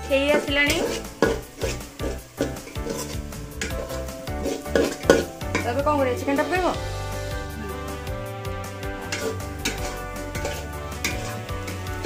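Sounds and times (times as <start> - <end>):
food frying sizzle: 0.0 - 12.0
metal spoon scraping pot: 0.1 - 5.8, 8.9 - 12.0.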